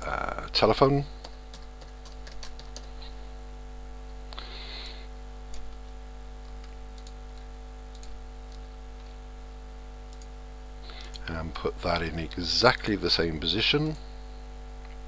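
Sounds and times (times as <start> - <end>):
steady electrical hum: 0.0 - 15.0
computer keyboard typing: 1.1 - 3.0, 5.5 - 5.8, 6.4 - 8.7, 10.1 - 10.3
short breathy hiss: 4.3 - 5.1.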